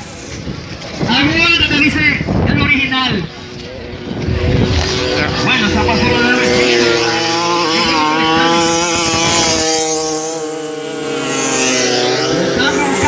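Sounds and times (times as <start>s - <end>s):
racing scooter engines whining: 0.0s - 13.0s
engine speeding up: 2.8s - 13.0s.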